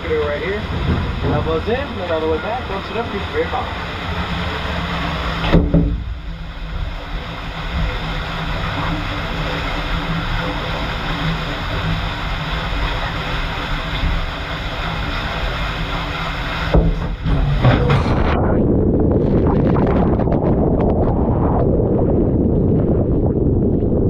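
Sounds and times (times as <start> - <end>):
water rushing down slide: 0.0 - 18.4
low rumble: 0.0 - 24.0
brief thump: 5.4 - 6.1.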